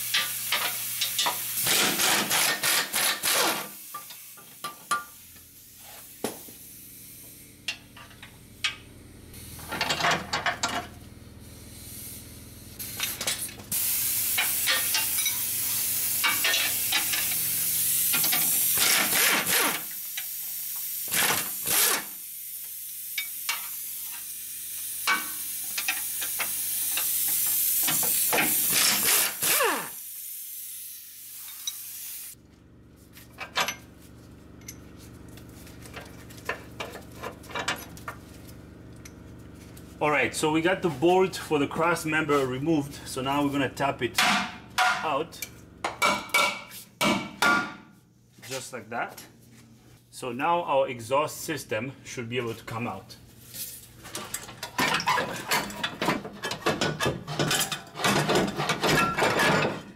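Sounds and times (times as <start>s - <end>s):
air tool running: 0.0s - 10.0s, 10.9s - 32.4s
hiss of escaping air: 11.4s - 32.4s.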